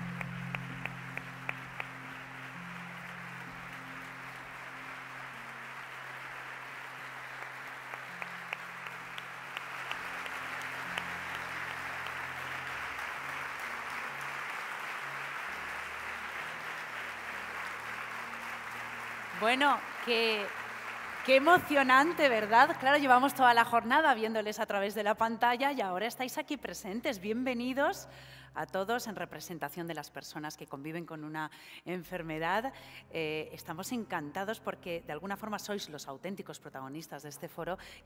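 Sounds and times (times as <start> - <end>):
audience applauding: 0.0 - 23.7
soft background music: 0.0 - 38.0.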